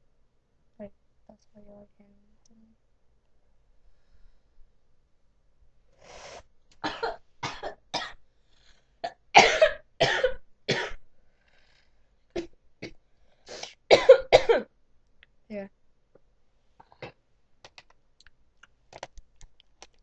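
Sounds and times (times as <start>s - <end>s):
woman coughing hard: 6.8s - 8.2s, 9.1s - 11.0s, 13.9s - 14.7s.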